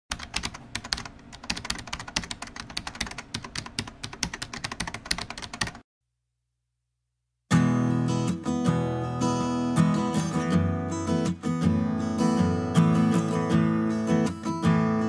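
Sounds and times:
keyboard typing clicks: 0:00.1 - 0:05.8
strummed acoustic guitar music: 0:07.5 - 0:15.0.

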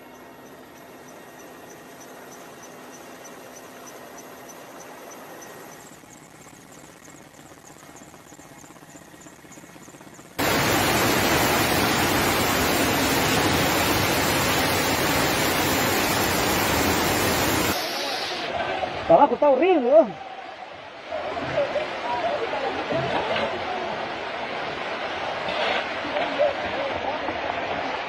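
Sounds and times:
faint high ticking: 0:00.0 - 0:10.4
faint hiss: 0:10.4 - 0:18.6
flood torrent rushing: 0:10.4 - 0:19.0.

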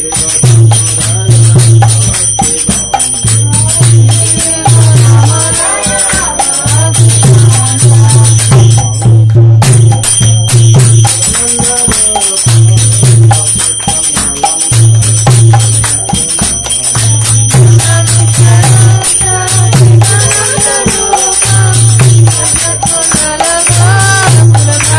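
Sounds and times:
devotional music with jingling percussion: 0:00.0 - 0:24.9.

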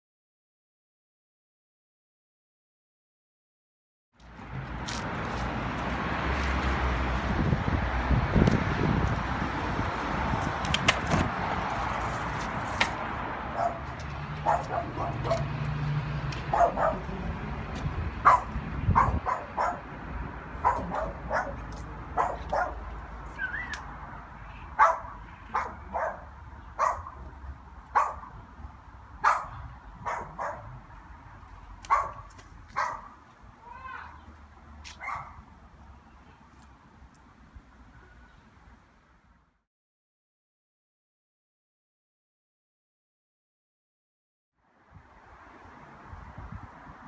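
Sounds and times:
dog barking: 0:13.5 - 0:15.5, 0:16.5 - 0:17.1, 0:18.2 - 0:19.9, 0:20.6 - 0:22.8, 0:24.8 - 0:27.2, 0:27.9 - 0:28.3, 0:29.2 - 0:30.7, 0:31.9 - 0:33.2, 0:35.0 - 0:35.4.

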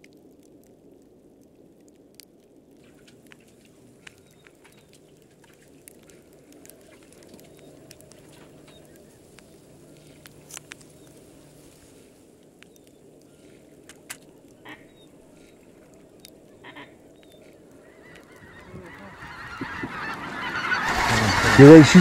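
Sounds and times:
geese honking: 0:14.5 - 0:22.0.

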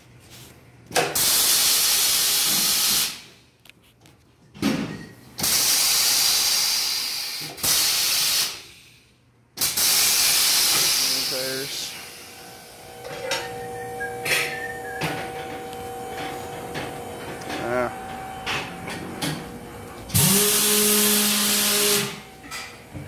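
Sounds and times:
compressed air hissing: 0:09.6 - 0:12.3, 0:20.1 - 0:22.2.

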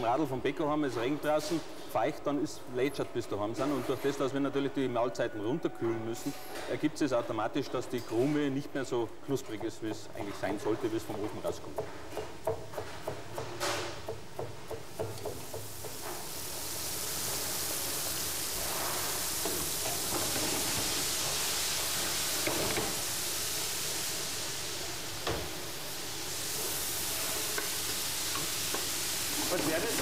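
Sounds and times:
knife chopping on cutting board: 0:11.2 - 0:16.0
food sizzling in frying pan: 0:14.2 - 0:30.0.

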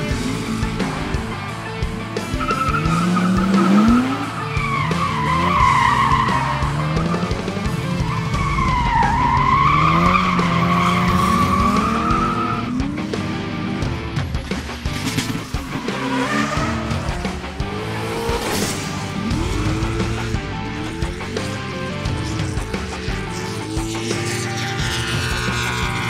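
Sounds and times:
car engine revving: 0:00.0 - 0:26.0
tyres squealing: 0:02.1 - 0:13.0.

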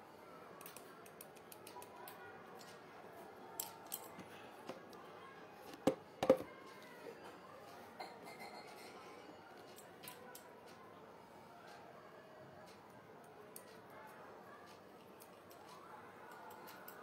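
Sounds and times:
phone knocks: 0:05.8 - 0:06.5.

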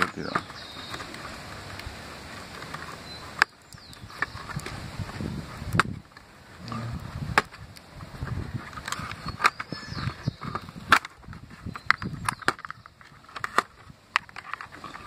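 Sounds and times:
handling rumble: 0:00.0 - 0:15.0
clicks of plastic casing handled: 0:08.7 - 0:15.0.

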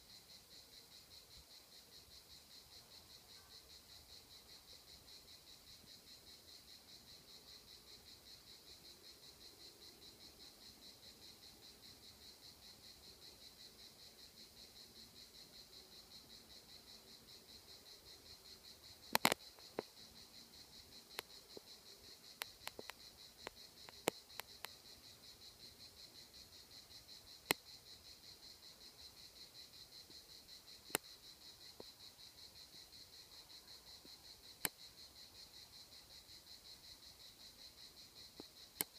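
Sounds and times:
insects buzzing: 0:00.0 - 0:38.9
sharp clicks: 0:19.1 - 0:19.4.

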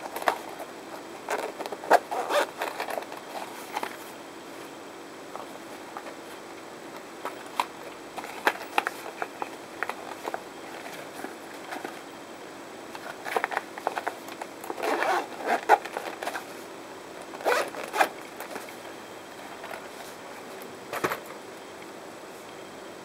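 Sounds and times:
zipper rasping: 0:01.3 - 0:02.7, 0:14.7 - 0:16.4, 0:17.4 - 0:18.1
case handling: 0:07.2 - 0:12.0.

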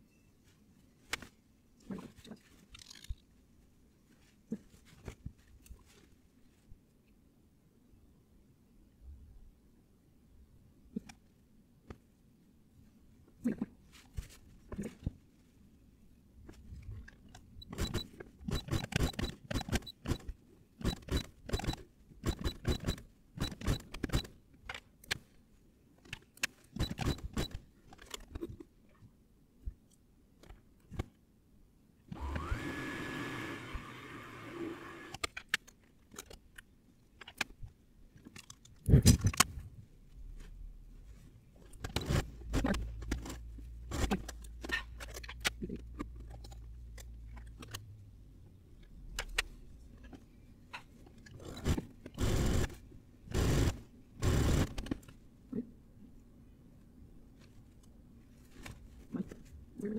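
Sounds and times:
sped-up clicks taps and scrapes: 0:17.0 - 0:25.3.

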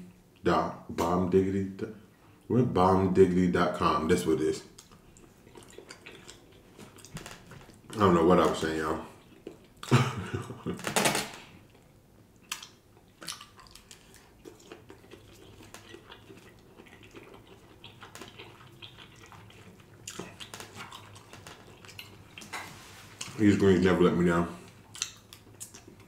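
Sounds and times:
eating noises: 0:04.6 - 0:10.6, 0:11.4 - 0:23.9, 0:24.6 - 0:26.0.

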